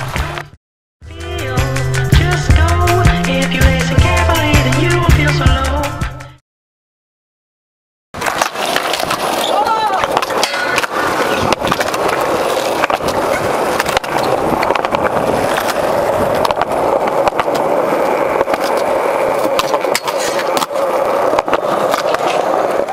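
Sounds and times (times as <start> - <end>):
skateboard wheels rolling on concrete: 0.0 - 0.6, 1.2 - 6.0, 8.2 - 22.9
skateboard clacking on ground: 8.2 - 22.9.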